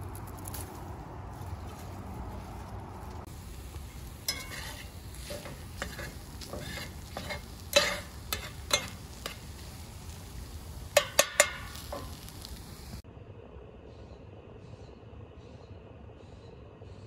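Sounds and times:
food sizzling in a skillet: 3.2 - 13.0
metal spatula scraping: 3.2 - 13.0
spatula clanking against pan: 3.7 - 12.6.

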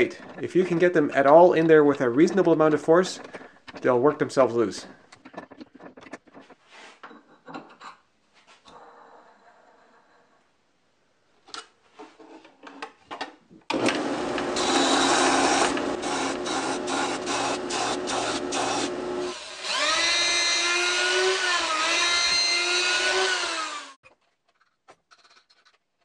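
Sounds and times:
router high whine: 13.7 - 24.0
belt sander rasping on wood: 14.0 - 24.0.

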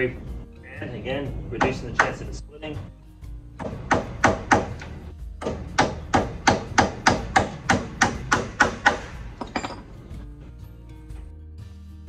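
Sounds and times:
hammer striking staples: 3.6 - 9.5.

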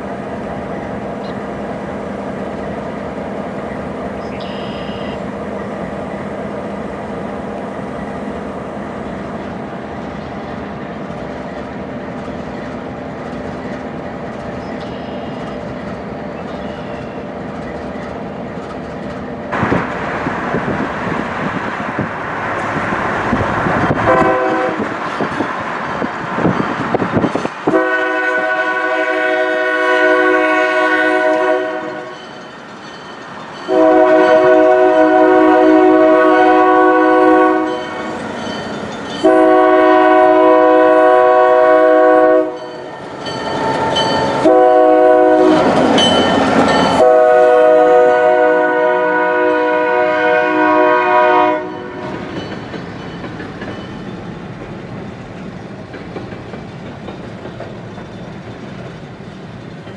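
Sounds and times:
train rumbling past: 0.0 - 59.9
locomotive air horn blasts: 24.0 - 25.0, 27.7 - 32.2, 33.7 - 38.1, 39.2 - 42.7, 43.8 - 45.8, 47.0 - 52.1.

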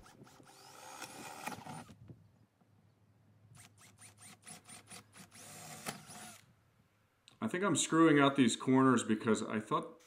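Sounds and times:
cordless drill drilling plywood: 0.0 - 2.0, 3.6 - 6.5.

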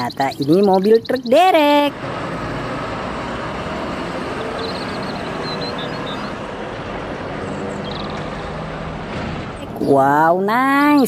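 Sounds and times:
diesel truck engine running: 0.0 - 11.0
traffic rumble: 0.0 - 11.0.

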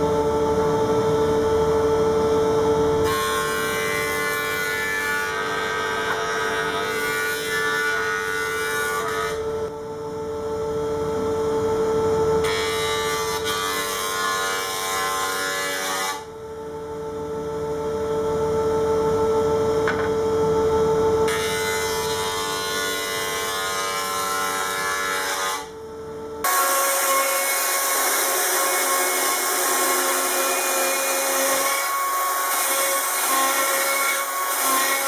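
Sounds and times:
jointer-planer whine: 0.0 - 35.0
planer cutting wood: 3.0 - 9.4, 12.4 - 16.3, 21.3 - 25.7, 26.4 - 35.0.

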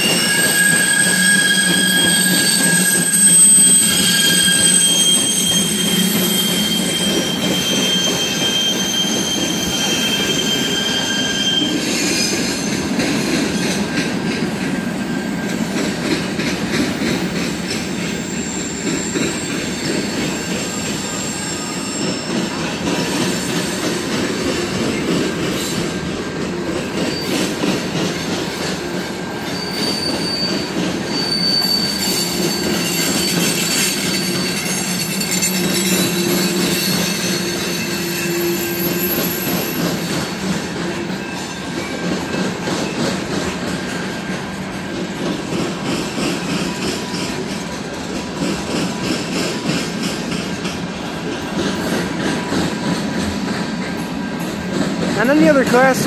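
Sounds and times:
high-pitched wheel squeals: 0.0 - 12.8, 17.7 - 23.7, 29.3 - 40.4
train wheels rumbling on rails: 0.0 - 56.0.

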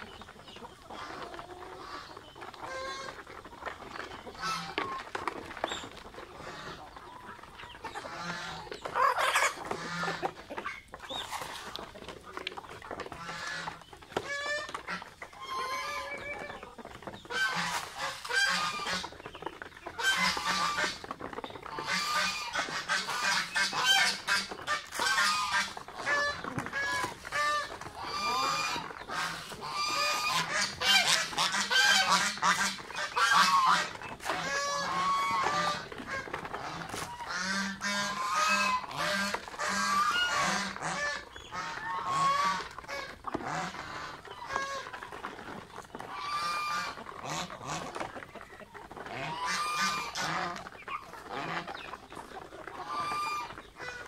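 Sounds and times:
geese honking: 0.0 - 54.0.

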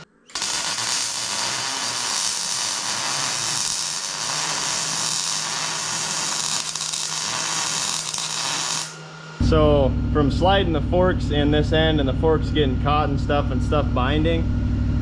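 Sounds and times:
low hum: 3.2 - 15.0.

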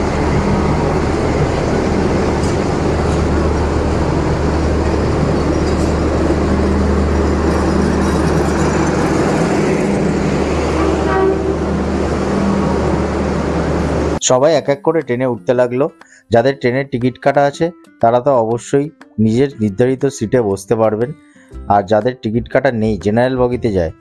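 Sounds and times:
train low rumble: 0.0 - 14.2.

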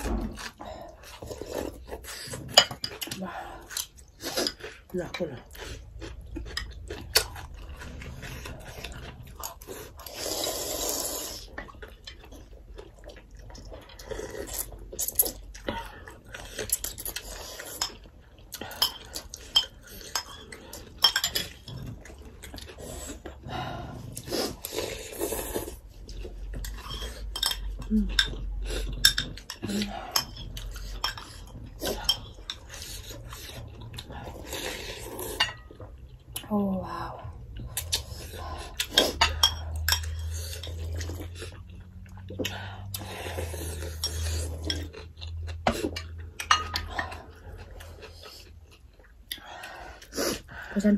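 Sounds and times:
slurping soup: 0.0 - 13.1, 16.0 - 27.4, 28.5 - 35.8
cutlery clinking on ceramic bowls: 2.4 - 3.2, 17.8 - 21.8, 26.7 - 32.9, 38.9 - 40.8, 43.8 - 47.2.

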